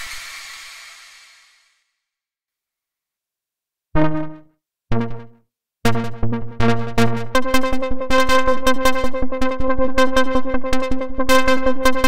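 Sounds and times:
plucked synth note: 4.0 - 5.3
repeated low synth notes: 4.0 - 11.2.

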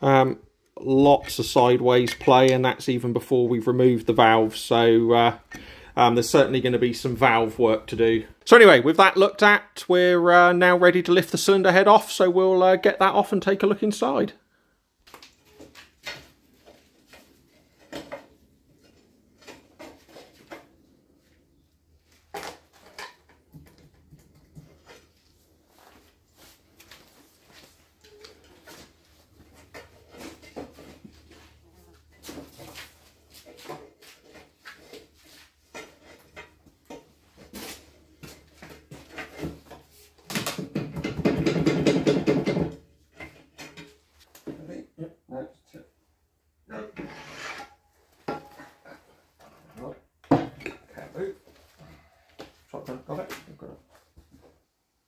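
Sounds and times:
loud metal scraping: 47.0 - 47.8.

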